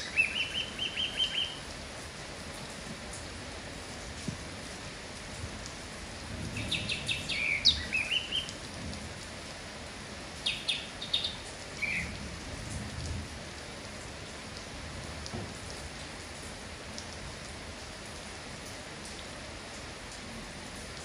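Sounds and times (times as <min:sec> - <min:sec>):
bird chirping: 0:00.0 - 0:01.6, 0:06.6 - 0:08.5, 0:10.4 - 0:12.2
steady rain falling: 0:00.0 - 0:21.0.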